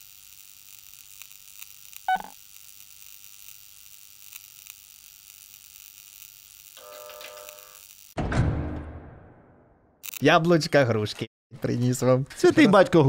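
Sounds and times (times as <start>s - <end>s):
electronic static hiss: 0.0s - 8.2s
electronic blip falling in pitch: 2.1s - 2.3s.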